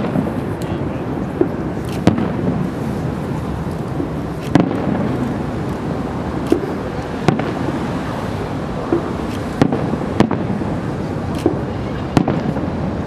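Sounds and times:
steady background noise: 0:00.0 - 0:13.0
firework shells bursting: 0:01.3 - 0:07.7.

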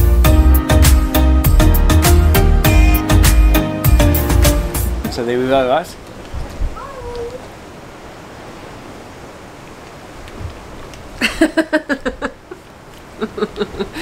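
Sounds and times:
background hiss: 0:02.9 - 0:14.0
burst of laughter: 0:11.2 - 0:14.0.

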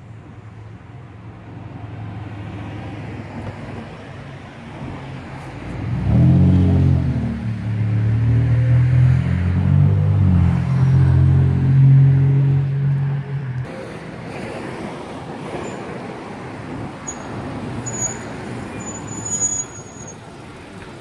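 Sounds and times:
road traffic noise: 0:00.0 - 0:21.0
short high squeaks: 0:17.0 - 0:20.2.

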